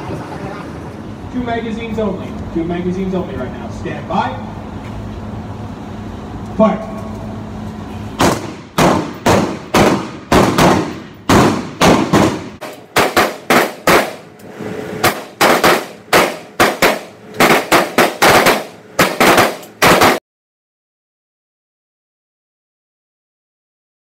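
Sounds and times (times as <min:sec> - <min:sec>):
rifle shots echoing: 0:08.2 - 0:14.3, 0:15.0 - 0:20.2.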